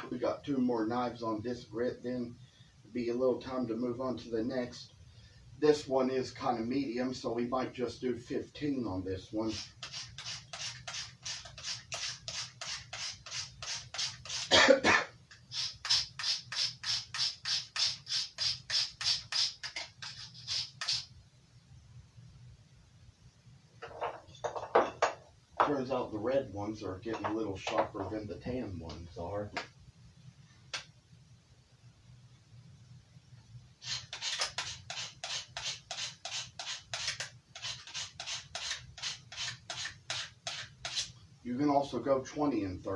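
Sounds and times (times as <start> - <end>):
knife scraping on sharpener: 9.5 - 14.5, 15.6 - 21.1, 33.8 - 41.1.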